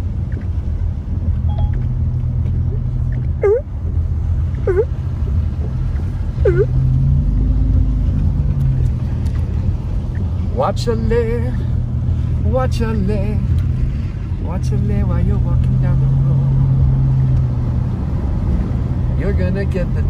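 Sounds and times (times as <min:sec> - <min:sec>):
car engine and tyres rumbling: 0:00.0 - 0:20.0
windshield wipers squeaking: 0:00.3 - 0:06.9.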